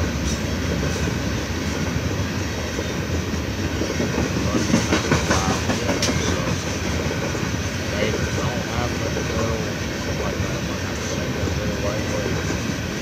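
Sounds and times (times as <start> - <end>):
freight train rolling past: 0.0 - 13.0
wheels clacking over rail joints: 3.8 - 7.4.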